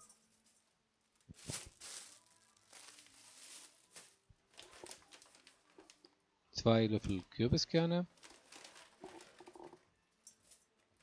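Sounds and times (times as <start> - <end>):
plastic packets crinkling: 1.1 - 6.1, 8.1 - 10.6.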